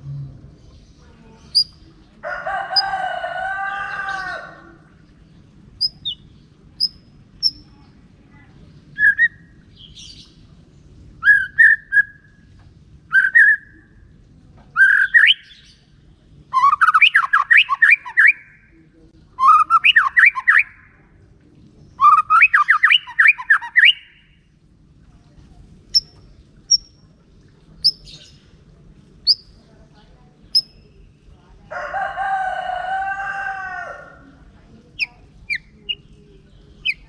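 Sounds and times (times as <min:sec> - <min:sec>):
bird singing whistled notes: 0:13.1 - 0:13.7, 0:14.8 - 0:15.7, 0:16.5 - 0:18.6, 0:22.0 - 0:24.4, 0:29.2 - 0:29.5.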